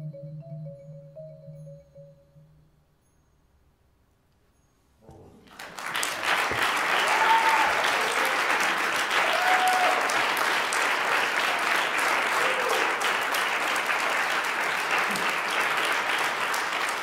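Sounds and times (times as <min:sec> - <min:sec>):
audience applauding: 0:05.4 - 0:17.0.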